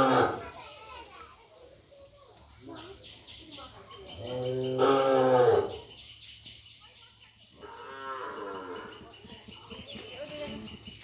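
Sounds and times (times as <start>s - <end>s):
cattle mooing: 4.2s - 5.7s.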